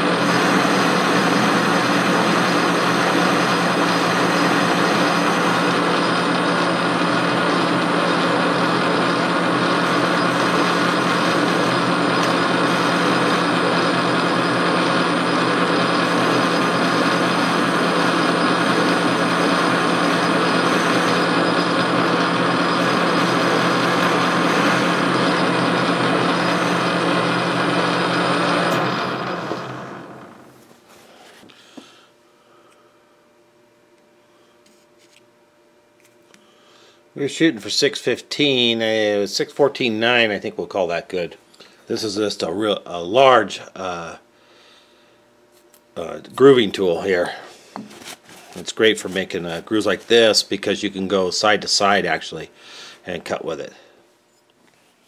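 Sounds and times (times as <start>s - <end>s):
cutting tool hissing on metal: 0.0s - 29.6s
metal lathe motor hum and whine: 0.0s - 30.6s.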